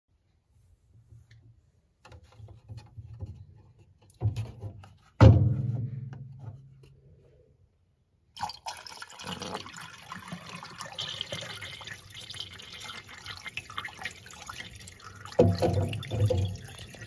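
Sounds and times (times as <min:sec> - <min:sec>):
model toilet flushing: 0:08.4 - 0:17.0.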